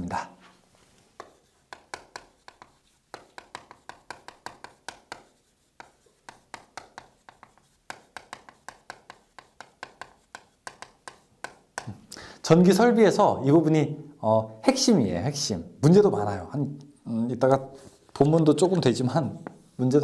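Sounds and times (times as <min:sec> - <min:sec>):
chalk tapping and scratching: 0:00.4 - 0:12.1, 0:17.8 - 0:20.0.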